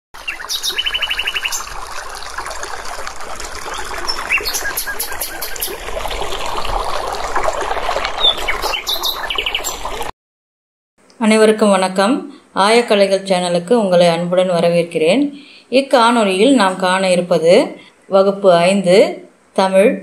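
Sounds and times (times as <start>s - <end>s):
birds chirping: 0.2s - 1.8s, 3.6s - 5.8s, 8.2s - 10.0s
running water: 0.2s - 10.1s.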